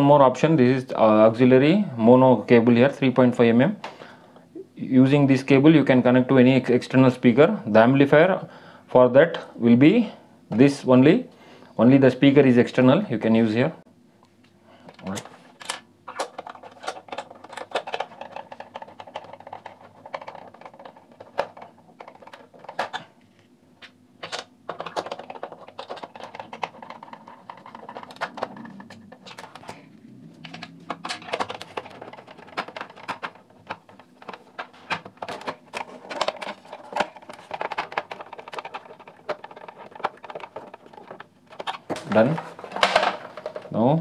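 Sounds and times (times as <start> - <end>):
plastic parts clicking and tapping: 14.8 - 23.1, 23.8 - 29.8, 30.4 - 43.9
rubbing and shuffling: 24.7 - 43.8.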